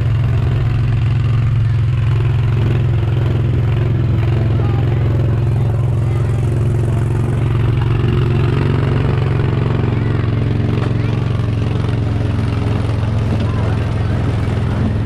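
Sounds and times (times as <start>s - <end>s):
engine low drone: 0.0s - 15.0s.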